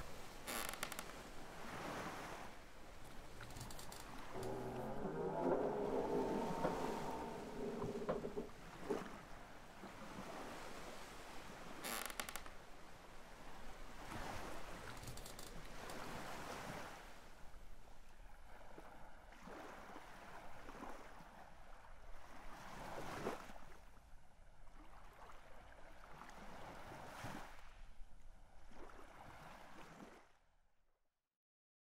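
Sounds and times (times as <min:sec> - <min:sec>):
sea waves washing in: 0:00.0 - 0:11.8.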